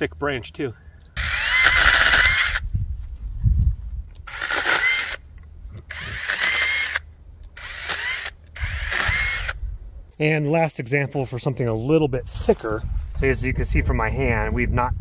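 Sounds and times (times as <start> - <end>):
electric chainsaw motor whine: 1.2 - 2.6, 4.2 - 5.2, 5.9 - 9.6.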